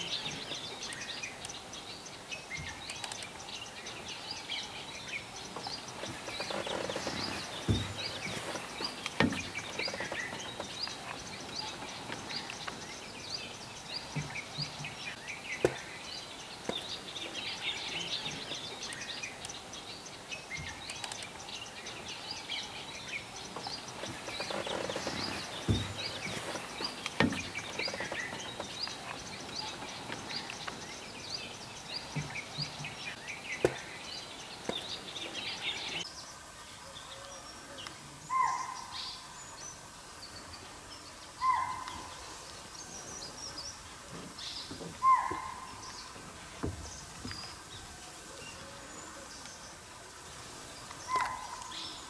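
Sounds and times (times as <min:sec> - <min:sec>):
background hiss: 0:00.0 - 0:52.0
small birds chirping: 0:00.0 - 0:52.0
sharp clicks: 0:02.6 - 0:03.4, 0:20.7 - 0:21.4.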